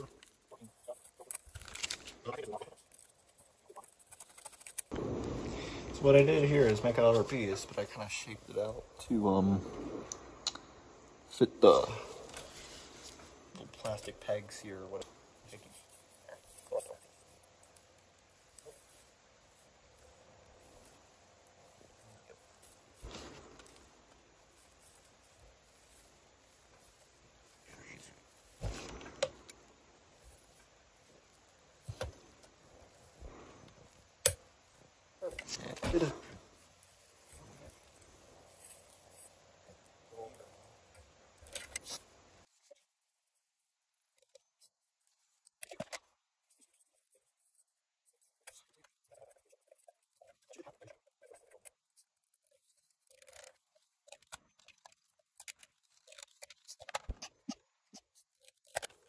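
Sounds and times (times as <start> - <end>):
camera being handled: 1.0 - 5.0, 52.9 - 59.0.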